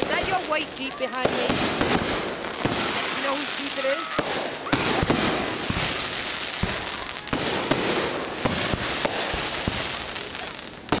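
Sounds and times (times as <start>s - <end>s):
fireworks booms: 0.0s - 11.0s
fireworks crackling: 0.0s - 11.0s
loud firework bang: 1.2s - 3.2s, 4.1s - 10.0s.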